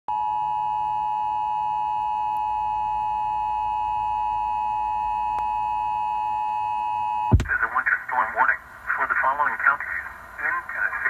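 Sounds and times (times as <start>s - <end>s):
emergency alert tone on radio: 0.1s - 7.8s.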